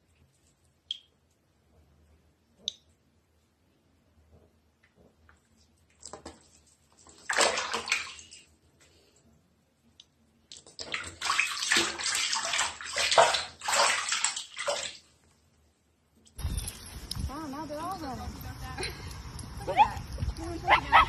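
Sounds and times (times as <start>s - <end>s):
water splashing in a plastic basin: 6.0s - 8.5s, 10.5s - 15.1s.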